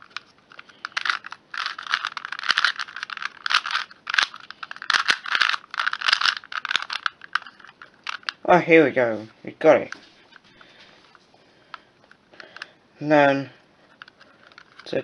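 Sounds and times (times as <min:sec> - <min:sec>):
puzzle cube clicking and scraping: 0:00.0 - 0:08.4, 0:13.9 - 0:15.0.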